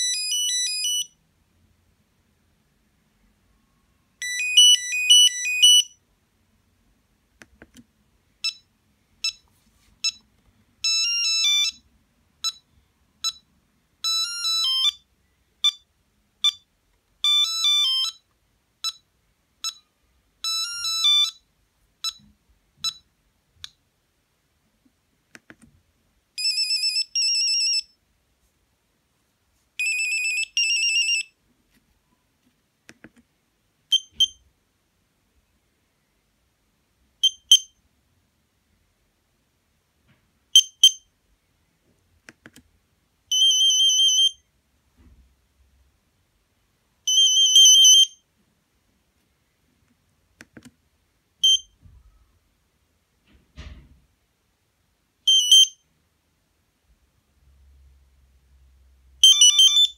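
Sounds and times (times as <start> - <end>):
monophonic phone ringtone beeps: 0.0 - 1.2, 4.2 - 6.0, 10.8 - 12.6, 17.2 - 18.2, 18.8 - 21.4, 26.4 - 27.9, 29.8 - 31.4, 47.1 - 48.2, 55.3 - 55.8, 59.2 - 59.9.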